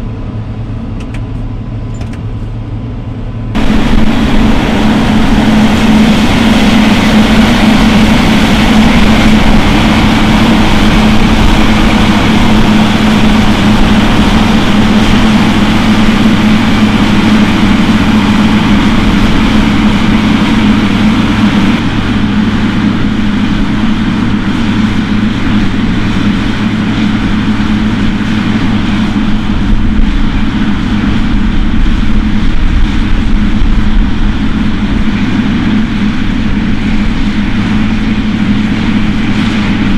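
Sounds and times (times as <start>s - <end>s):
farm machinery engine drone: 0.0s - 39.9s
machinery hiss: 3.6s - 24.3s.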